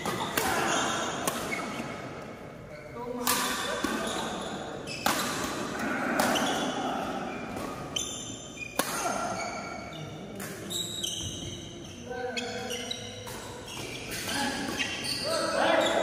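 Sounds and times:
rackets hitting shuttlecock: 0.0s - 2.3s, 3.2s - 8.0s, 8.6s - 9.4s.

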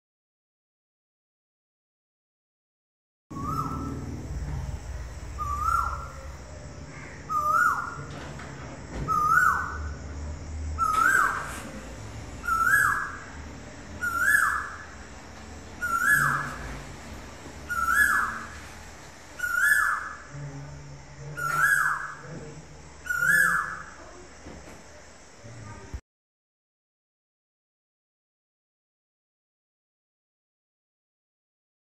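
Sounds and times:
low rumble: 3.3s - 7.3s
cuckoo calling: 3.3s - 8.4s, 9.0s - 10.0s, 10.7s - 11.8s, 12.4s - 16.9s, 17.6s - 20.5s, 21.2s - 24.2s.

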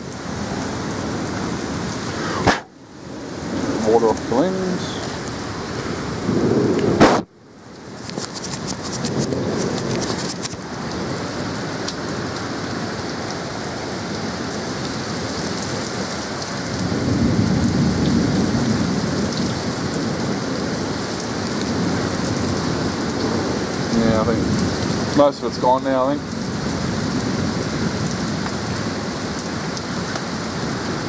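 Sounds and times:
heavy rain and hail: 0.0s - 31.0s
sharp hail clicks: 7.8s - 11.0s.

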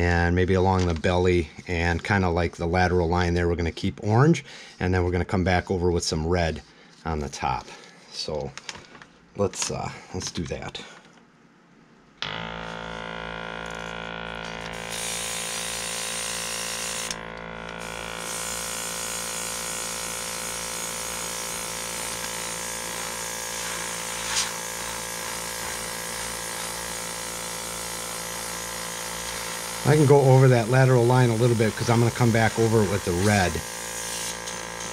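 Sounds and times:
airbrush compressor humming: 12.2s - 34.9s
airbrush spraying hiss: 22.0s - 26.9s, 30.6s - 34.9s.

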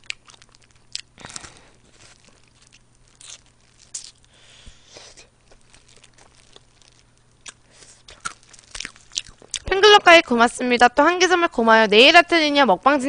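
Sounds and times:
chewing: 0.0s - 9.7s
meat tearing off bone: 0.0s - 9.7s
crisp chicken skin crunching: 0.0s - 9.8s.

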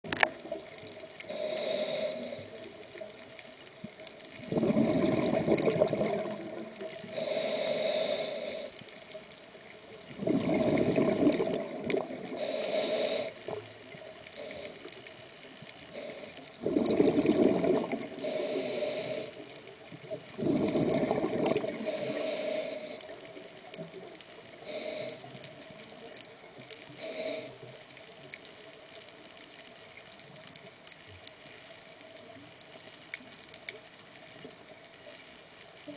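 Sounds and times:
exhaled air bubbles: 0.1s - 8.8s, 10.0s - 27.5s
regulator hissing inhale: 1.1s - 3.2s, 6.8s - 9.1s, 12.2s - 13.6s, 14.2s - 15.2s, 15.8s - 16.7s, 18.1s - 19.7s, 21.7s - 23.4s, 24.5s - 26.2s, 26.8s - 27.8s.

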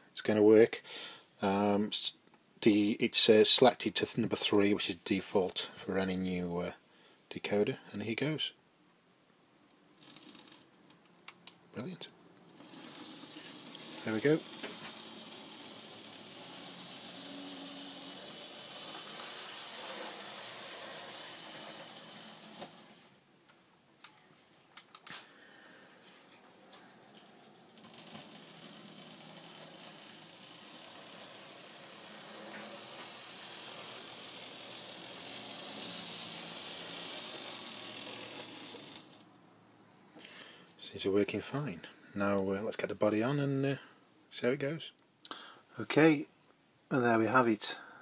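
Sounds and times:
model locomotive motor whirring: 10.0s - 10.7s, 12.5s - 23.2s, 27.2s - 39.3s.

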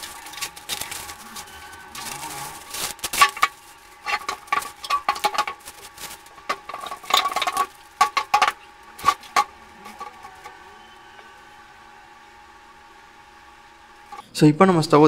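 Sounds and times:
packing being cut and pulled: 0.0s - 4.2s.

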